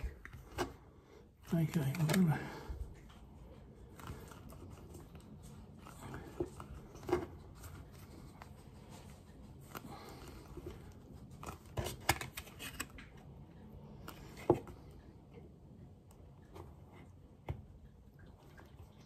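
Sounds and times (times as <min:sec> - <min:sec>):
soft rubbing of rubber: 0:03.8 - 0:12.8.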